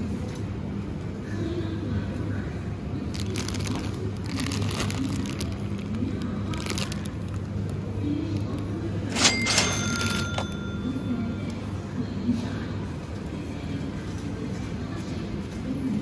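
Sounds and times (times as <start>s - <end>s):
plastic bag crinkling: 3.0s - 8.6s.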